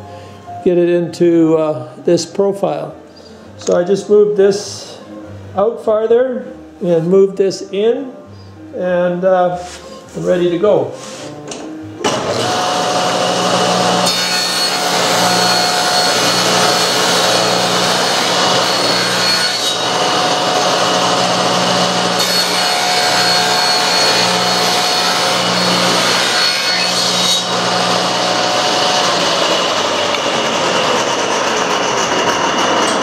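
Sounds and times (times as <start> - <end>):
table saw cutting wood: 12.0 - 33.0.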